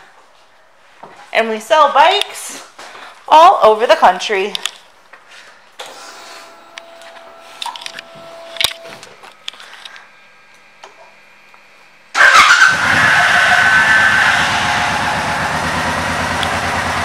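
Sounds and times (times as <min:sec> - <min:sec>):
faint steady whine: 0:04.6 - 0:12.2
motorcycle engine starting: 0:12.1 - 0:17.0.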